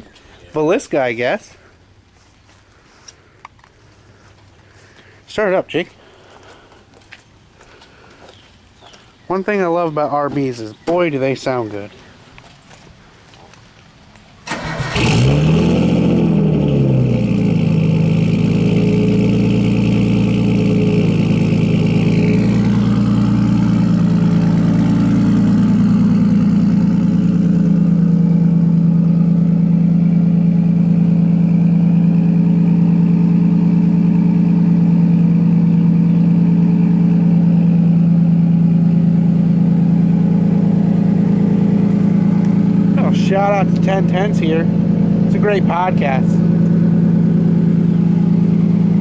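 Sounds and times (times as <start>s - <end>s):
car engine idling: 14.4s - 49.0s.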